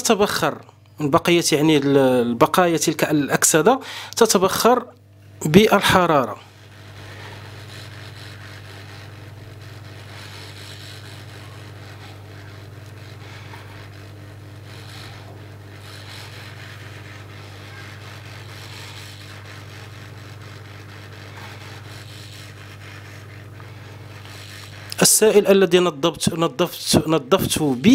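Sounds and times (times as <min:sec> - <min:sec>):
low mains hum: 0:00.0 - 0:27.9
hot air blower hissing: 0:03.7 - 0:04.3, 0:05.3 - 0:27.9.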